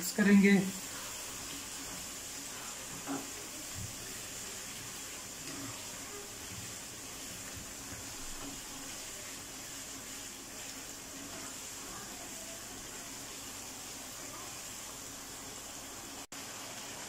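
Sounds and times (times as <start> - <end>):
food sizzling in a pan: 0.0 - 17.0.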